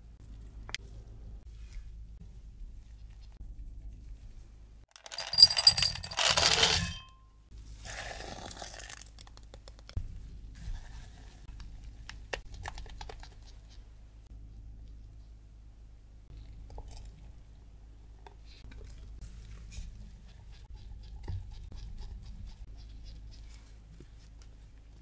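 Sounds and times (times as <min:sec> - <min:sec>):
rustling and clinking: 0:04.9 - 0:07.3.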